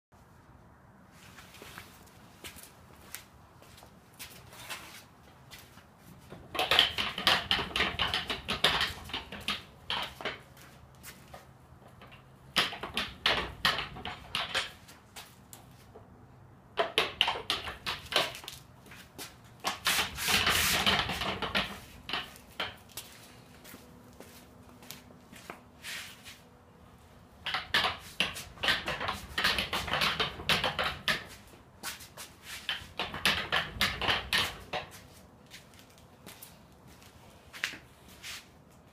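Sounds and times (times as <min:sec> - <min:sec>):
dolly casters rolling and rattling: 0:06.2 - 0:10.6, 0:19.6 - 0:23.0, 0:27.5 - 0:31.4.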